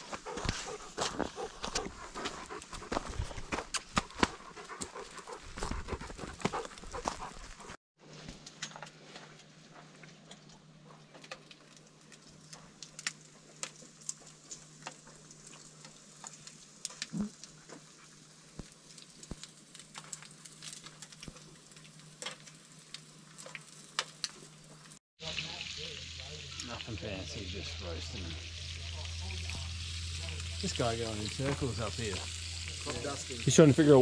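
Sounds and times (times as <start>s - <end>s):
sharp pops and spits: 0.0s - 7.7s, 12.8s - 17.9s, 18.5s - 21.6s
food sizzling on a grill: 12.1s - 34.0s
food sizzling in a frying pan: 13.9s - 34.0s.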